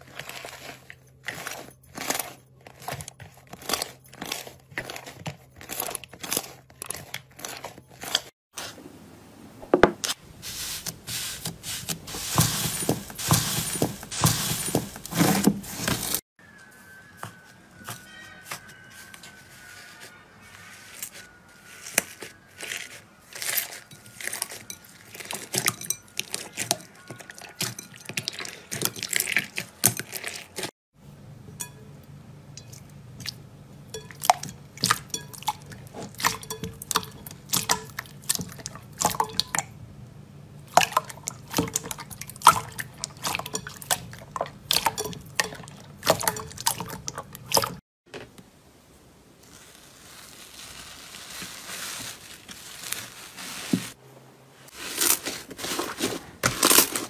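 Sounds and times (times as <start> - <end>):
slime squelching: 0.0 - 8.3, 10.0 - 16.2, 21.0 - 30.7, 32.6 - 39.7, 40.7 - 47.8.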